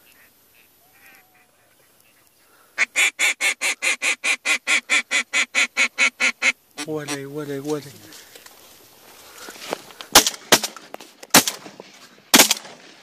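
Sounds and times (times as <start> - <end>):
rapid bird calls: 0.0 - 7.3.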